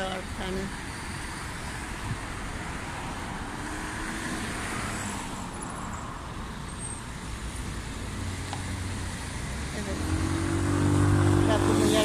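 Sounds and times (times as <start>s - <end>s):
road traffic noise: 0.0s - 12.0s
vehicle passing: 2.5s - 12.0s.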